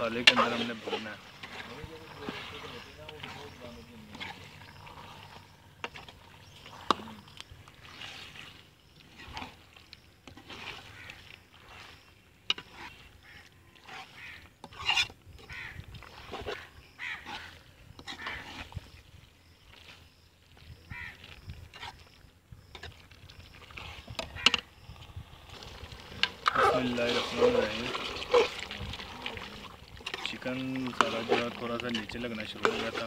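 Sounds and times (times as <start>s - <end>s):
metal spatula scraping a pan: 0.0s - 7.0s, 7.7s - 18.9s, 30.0s - 33.0s.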